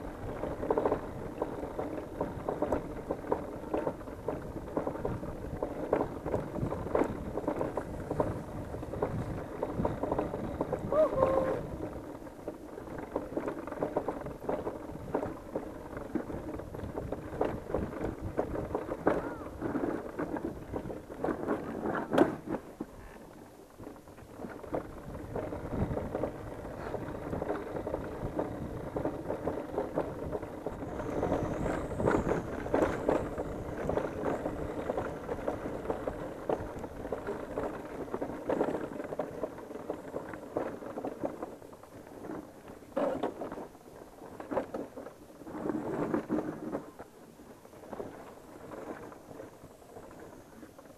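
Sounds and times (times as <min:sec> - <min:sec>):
motorcycle engine at low speed: 0:00.0 - 0:22.8, 0:23.9 - 0:47.0.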